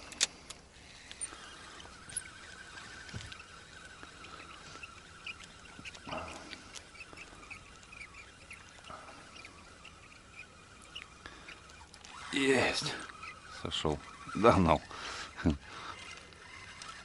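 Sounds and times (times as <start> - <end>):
faint steady hum: 0.0 - 17.0
bird chirps and calls: 4.1 - 16.6.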